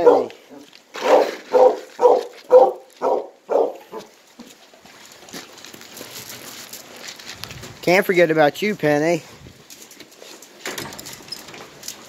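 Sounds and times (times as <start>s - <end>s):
dog barking: 0.0s - 4.1s.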